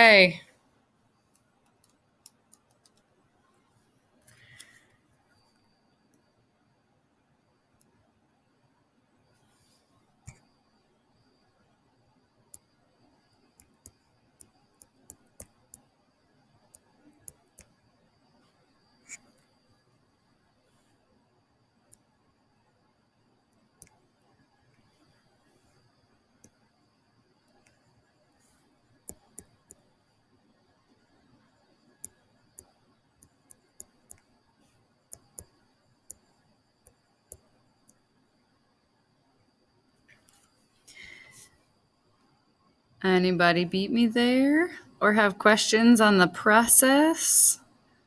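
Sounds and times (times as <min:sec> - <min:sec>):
faint high whine: 0:00.0 - 0:48.0
mouse clicks: 0:01.3 - 0:03.1.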